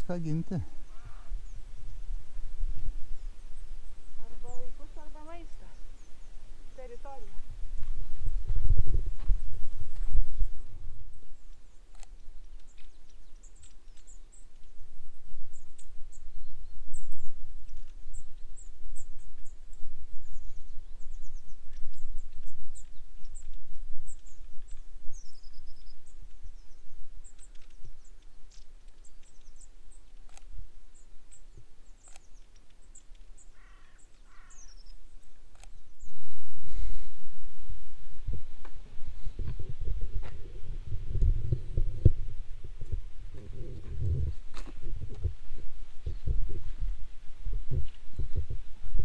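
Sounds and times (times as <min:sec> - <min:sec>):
lower bird calls: 0:00.0 - 0:07.6, 0:10.3 - 0:40.7
wind buffeting microphone: 0:00.0 - 0:32.2, 0:34.3 - 0:49.0
small birds chirping: 0:00.0 - 0:37.1, 0:38.5 - 0:46.9.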